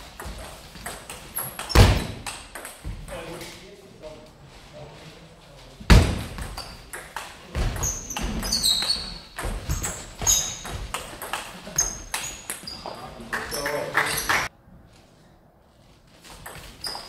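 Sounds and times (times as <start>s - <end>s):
shoe squeaks: 1.3s - 2.2s, 6.4s - 7.0s, 7.6s - 11.0s, 11.6s - 14.5s, 16.2s - 17.0s.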